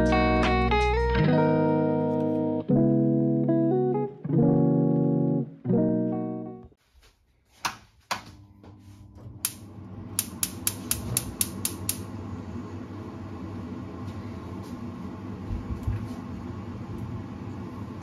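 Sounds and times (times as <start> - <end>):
gas burner rushing: 9.2 - 18.0
gas hob igniter clicking: 9.4 - 12.2.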